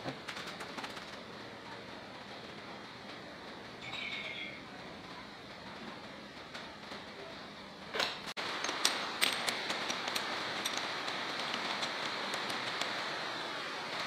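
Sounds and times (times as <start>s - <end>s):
steady hiss: 7.2s - 14.0s.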